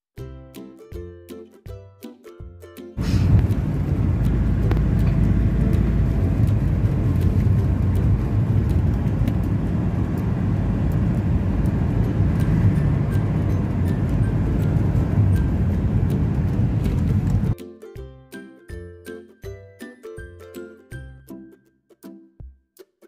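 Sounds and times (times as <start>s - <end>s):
vehicle road and engine rumble: 3.0s - 17.6s.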